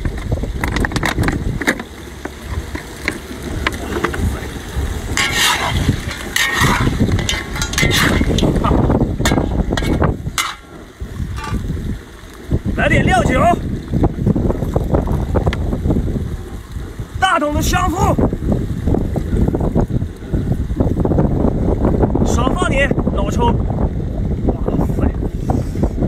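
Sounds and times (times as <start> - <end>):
wind on microphone: 0.0 - 26.0
food sizzling: 1.8 - 13.4
metal spatula scraping wok: 5.1 - 11.7.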